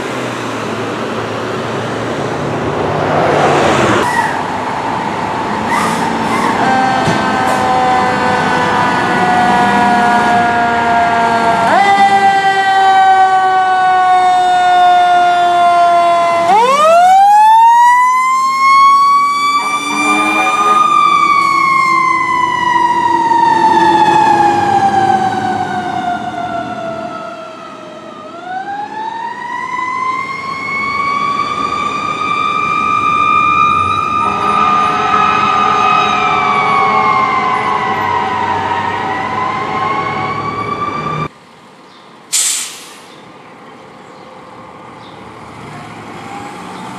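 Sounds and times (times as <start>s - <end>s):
fire truck siren wailing: 1.8s - 41.4s, 45.6s - 46.9s
steady horn tone: 6.4s - 12.4s, 19.4s - 22.0s, 34.1s - 40.4s.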